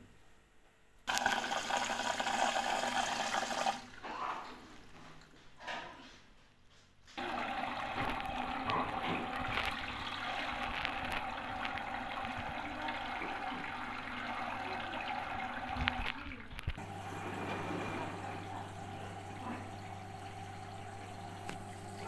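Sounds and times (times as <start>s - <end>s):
water rushing into washing machine: 1.1s - 4.9s, 7.2s - 22.0s
water trickling: 7.2s - 22.0s.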